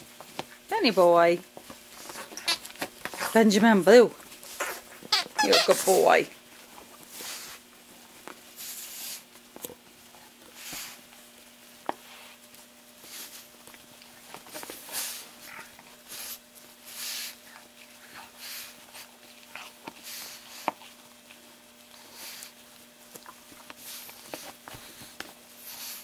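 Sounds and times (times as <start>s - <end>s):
dog chewing squeaky toy: 2.2s - 3.3s, 4.6s - 6.0s
dog snuffling breaths: 6.8s - 7.7s, 8.4s - 9.4s, 10.2s - 11.2s, 11.9s - 13.6s, 14.2s - 26.0s.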